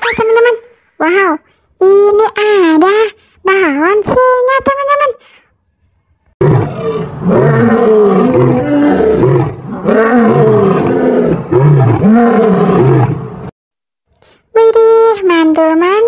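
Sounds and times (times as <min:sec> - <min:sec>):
lion roaring: 0:06.4 - 0:13.5.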